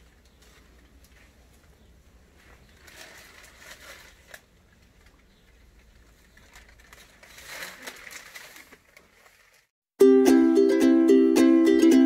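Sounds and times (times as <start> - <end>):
newspaper pages rustling: 0.2 - 9.8.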